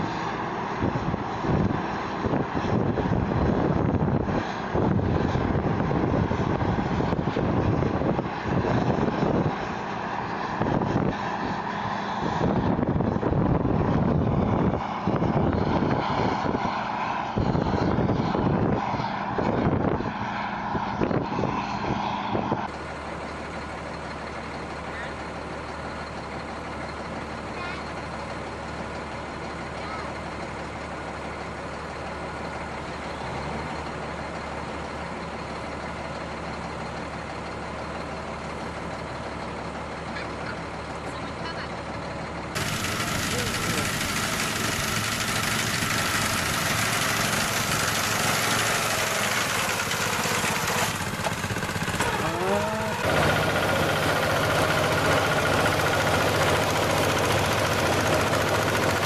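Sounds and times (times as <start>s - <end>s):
diesel engines droning: 0.0s - 59.0s
auger pouring grain: 42.6s - 59.0s.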